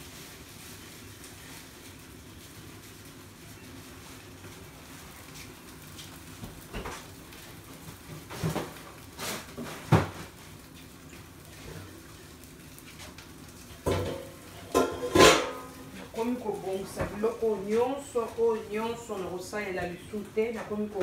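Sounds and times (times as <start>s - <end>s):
knocks and clunks of things handled: 7.8s - 10.9s, 13.8s - 16.1s.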